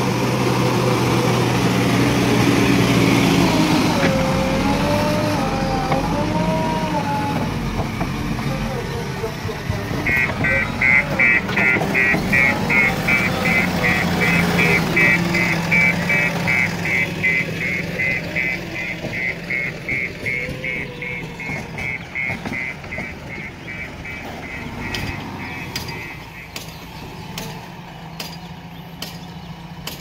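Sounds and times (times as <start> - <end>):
diesel engine running: 0.0 - 30.0
reversing alarm beeping: 9.9 - 26.6.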